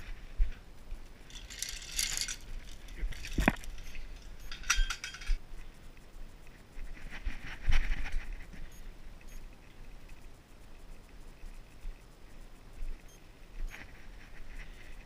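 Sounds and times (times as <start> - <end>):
chain and padlock jangling: 1.3 - 5.4
sharp metal clinks: 1.3 - 5.4.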